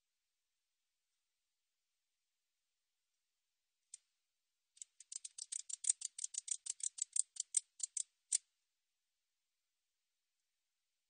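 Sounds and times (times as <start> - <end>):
katydid ticking: 4.8 - 8.4.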